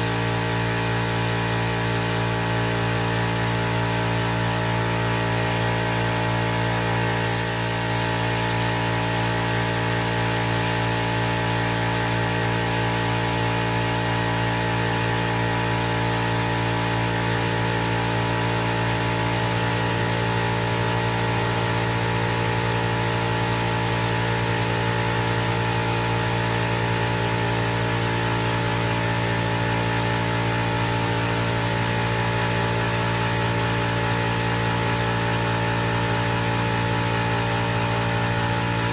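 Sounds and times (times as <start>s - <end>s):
paint spray gun hissing: 0.0s - 2.6s, 7.2s - 38.9s
steady machine hum: 32.6s - 38.9s.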